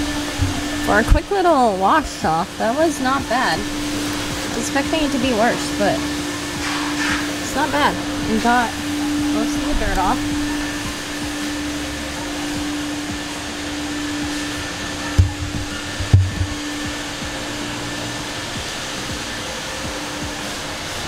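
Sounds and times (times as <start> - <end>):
blower motor whirring: 0.0 - 21.0
short low thumps: 15.2 - 17.3.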